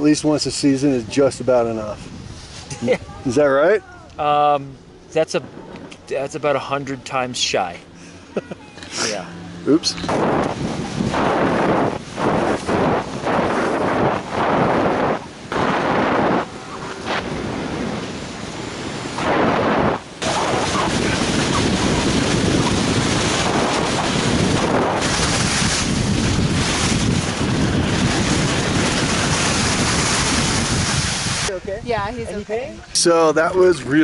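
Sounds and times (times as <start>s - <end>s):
wind buffeting microphone: 0.0s - 4.1s, 9.2s - 34.0s
skis hissing over snow: 24.4s - 31.5s.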